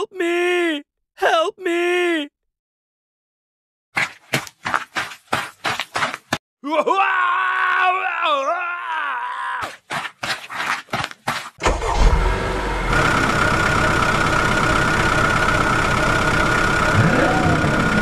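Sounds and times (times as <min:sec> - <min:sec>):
engine cranking and running: 0:11.6 - 0:18.0
constant high whine: 0:12.2 - 0:18.0.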